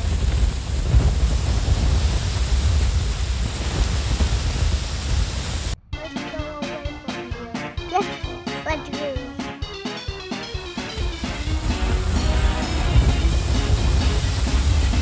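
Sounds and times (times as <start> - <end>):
wind buffeting microphone: 0.0 - 5.8, 11.2 - 15.0
music: 5.8 - 15.0.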